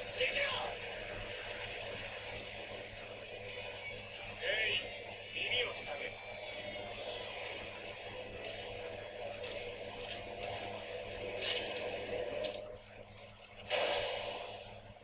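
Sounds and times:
soundtrack music: 0.0s - 15.0s
loud gunshot burst: 13.7s - 14.7s
hissing burst: 13.7s - 14.8s.

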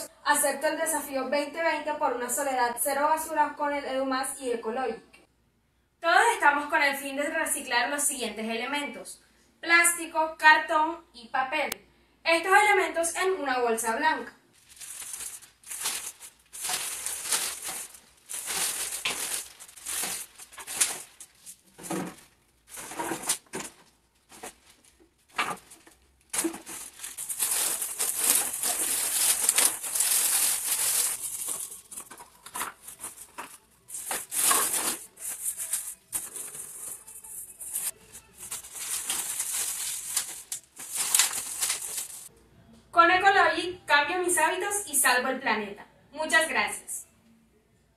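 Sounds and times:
plastic and paper crinkling: 14.6s - 42.3s.

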